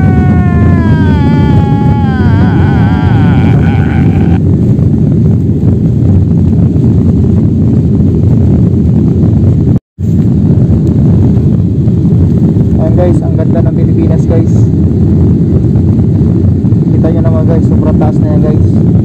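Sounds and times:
wavering voice sound effect: 0.0 - 4.4
jet engines and airflow in cabin: 4.3 - 19.0.

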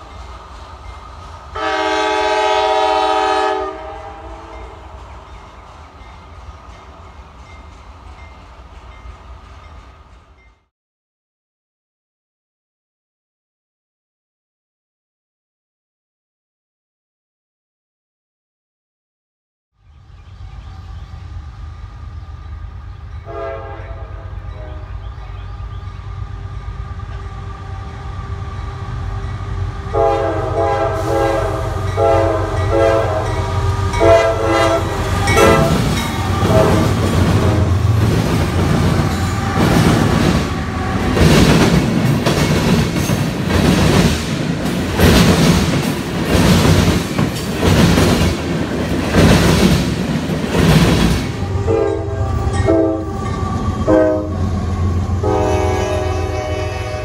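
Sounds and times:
train air horn blasts: 1.6 - 4.8, 23.2 - 25.0, 29.9 - 37.9, 51.4 - 57.0.

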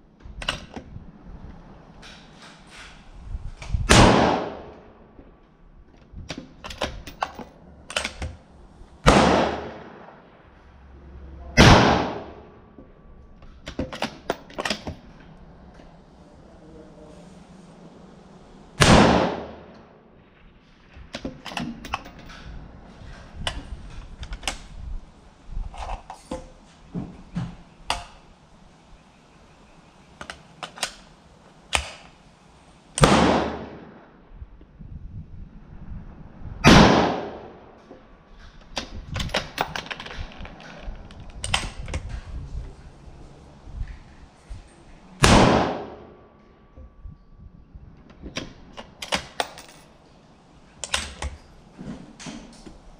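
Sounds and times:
rifle shots echoing: 3.9 - 4.8, 9.0 - 10.5, 11.6 - 12.6, 18.8 - 19.7, 33.0 - 34.2, 36.6 - 37.7, 45.2 - 46.1
metallic rifle handling clicks: 30.2 - 31.1, 48.1 - 50.0.

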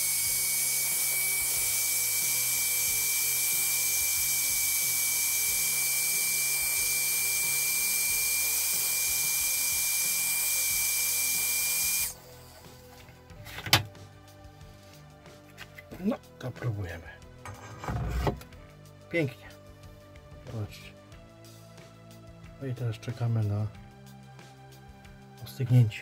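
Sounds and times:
heat gun blowing air: 0.0 - 13.0.

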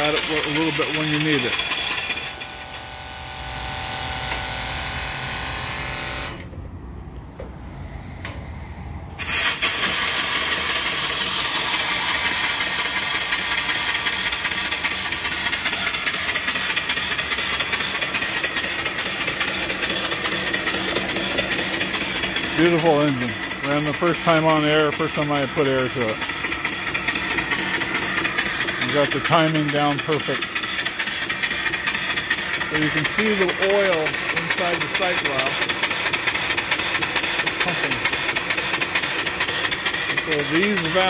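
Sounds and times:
steam engine running with hissing: 0.0 - 6.4, 9.1 - 41.0
electric water pump humming: 0.0 - 6.5, 7.5 - 41.0.

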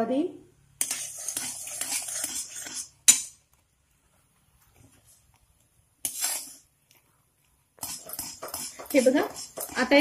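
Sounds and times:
spoon scraping steel pan: 0.8 - 3.4, 6.0 - 6.7, 7.8 - 10.0.

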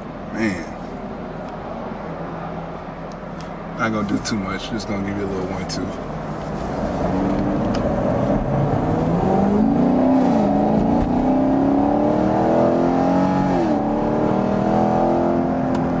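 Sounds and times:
car engine accelerating: 6.0 - 16.0.

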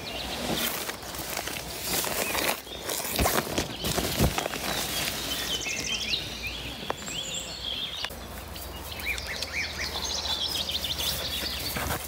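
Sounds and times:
outdoor background noise: 0.0 - 12.0
small birds chirping and trilling: 0.0 - 12.0.

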